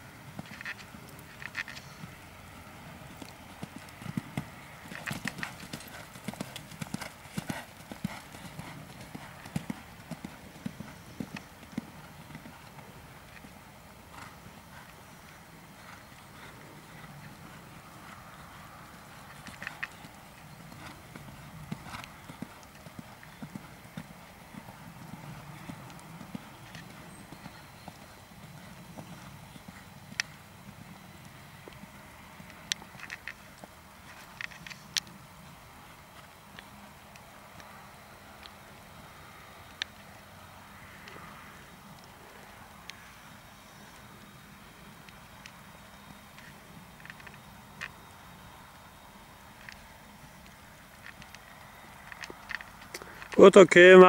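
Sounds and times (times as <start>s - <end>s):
horse hoofbeats on sand: 2.9s - 34.4s.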